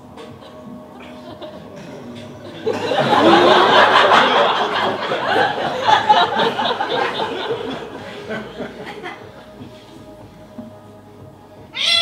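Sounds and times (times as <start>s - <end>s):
crowd laughing and shouting: 0.2s - 9.8s.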